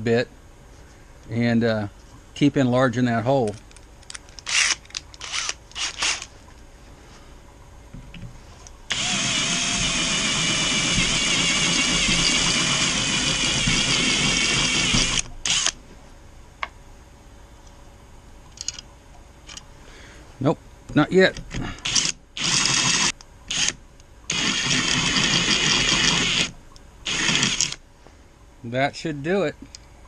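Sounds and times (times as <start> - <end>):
cordless drill cutting metal: 4.5 - 6.3, 8.9 - 15.8, 21.8 - 26.5, 27.1 - 27.8.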